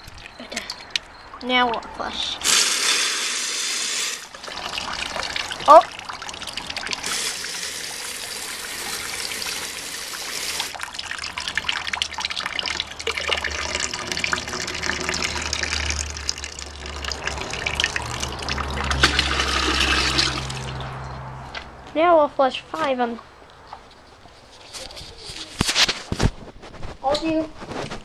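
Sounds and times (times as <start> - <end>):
toilet flushing: 2.2 - 20.8.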